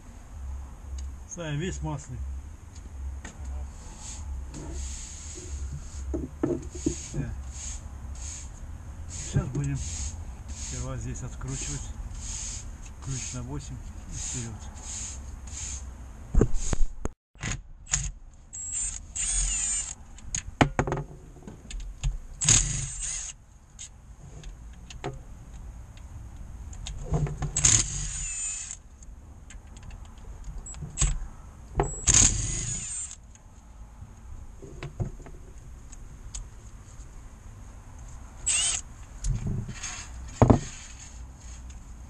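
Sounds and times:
cordless driver whirring: 17.9s - 20.0s, 22.4s - 23.4s, 27.6s - 28.8s, 32.0s - 33.2s, 38.4s - 38.8s.

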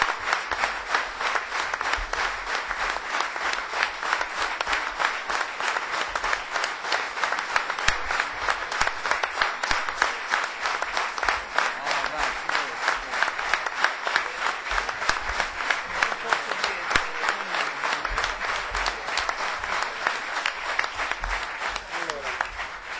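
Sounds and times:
audience applauding: 0.0s - 22.9s
crowd voices: 11.8s - 22.4s.

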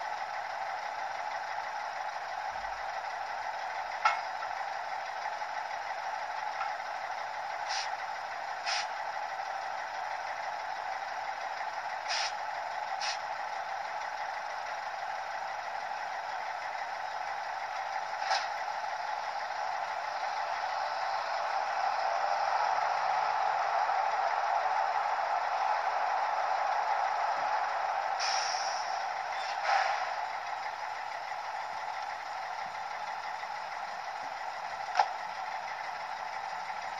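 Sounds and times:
diesel engine idling from speaker: 0.0s - 36.9s
short hisses: 7.7s - 7.9s, 8.7s - 8.9s, 12.1s - 12.3s, 28.2s - 28.9s.

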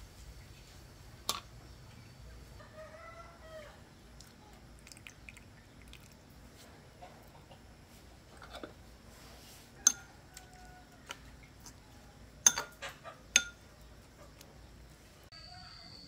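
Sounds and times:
rooster crowing: 2.6s - 3.8s, 9.8s - 11.3s, 15.3s - 16.0s.

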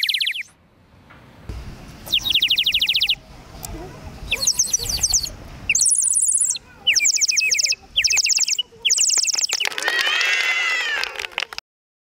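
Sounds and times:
water bird whistles trilling: 0.0s - 0.5s, 2.1s - 3.2s, 4.3s - 10.4s.

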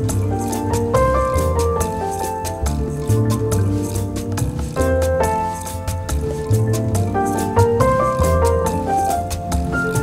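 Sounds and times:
deep bass line: 0.0s - 10.0s.

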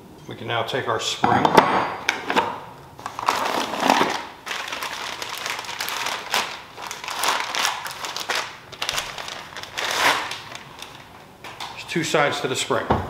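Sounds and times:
plastic bag crinkling: 3.0s - 11.3s.

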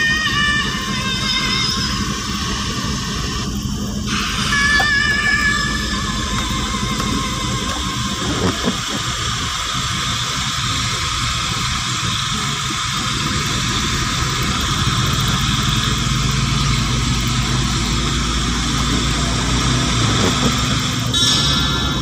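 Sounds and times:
car engine hum: 0.0s - 22.0s
tyres on wet road: 0.0s - 22.0s.

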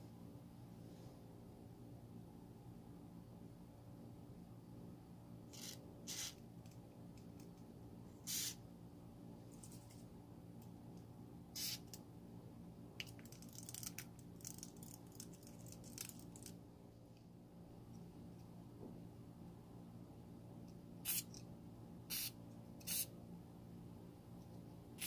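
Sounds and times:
faint steady hum: 0.0s - 25.0s
aerosol spray hissing: 5.6s - 6.4s, 8.2s - 8.6s, 11.6s - 11.8s, 21.1s - 21.3s, 22.1s - 23.1s.

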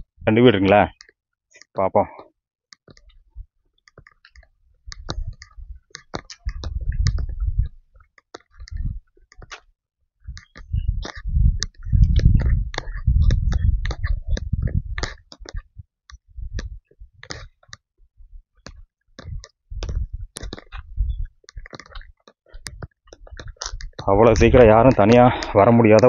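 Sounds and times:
low rumbling on microphone: 6.4s - 7.8s, 8.6s - 9.0s, 10.2s - 17.2s
footsteps on dirt trail: 10.4s - 15.7s.

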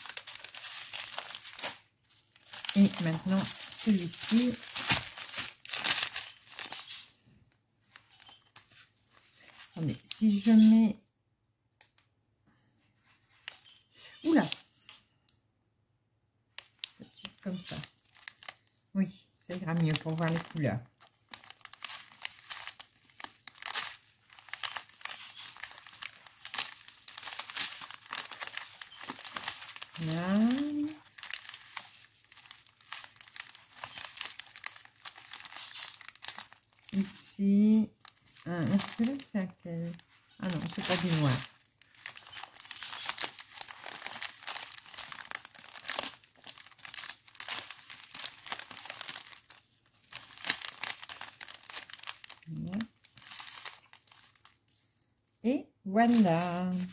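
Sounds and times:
plastic bags crinkling: 0.0s - 7.1s, 7.8s - 10.4s, 16.5s - 18.8s, 19.5s - 55.1s, 56.0s - 56.9s
small beads shifting: 0.0s - 7.1s, 19.5s - 37.3s, 37.9s - 54.6s.

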